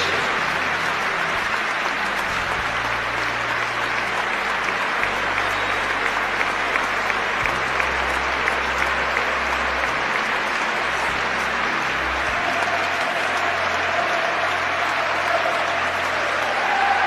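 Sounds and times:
stadium crowd applauding: 0.0s - 17.0s.

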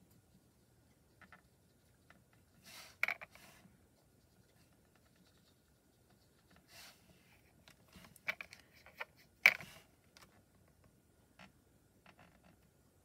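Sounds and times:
brush strokes on paper: 0.2s - 8.2s.

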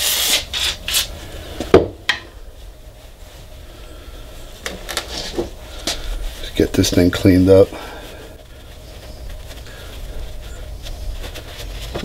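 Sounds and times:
paper towel rustling: 2.4s - 12.0s
rubbing on metal shaft: 4.9s - 12.0s.

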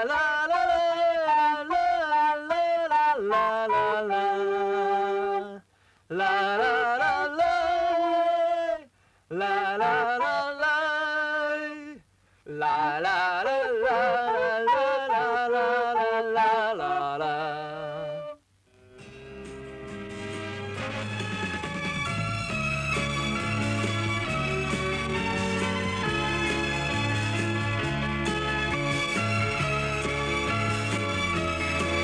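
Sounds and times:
person singing wordless melody: 0.0s - 18.5s.

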